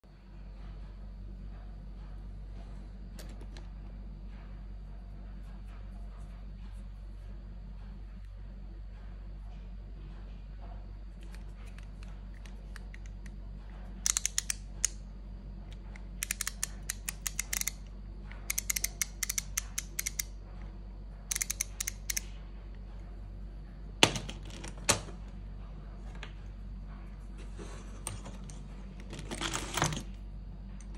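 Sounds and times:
ratchet screwdriver clicking: 0:14.1 - 0:14.6, 0:16.2 - 0:17.8, 0:18.5 - 0:20.3, 0:21.3 - 0:22.2.

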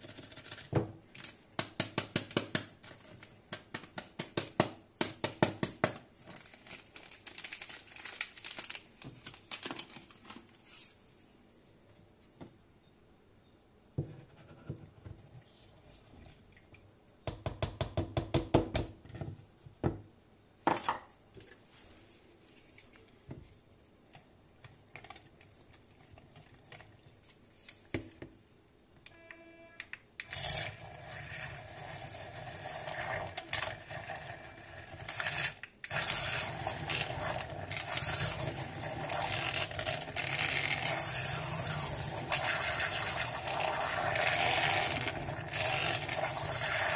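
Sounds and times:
mini mixer whisking: 0:30.2 - 0:46.9.

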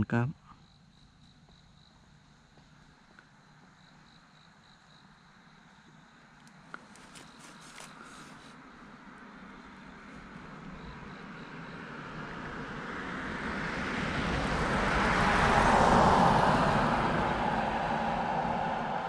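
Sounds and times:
vehicle passing: 0:07.0 - 0:19.0.

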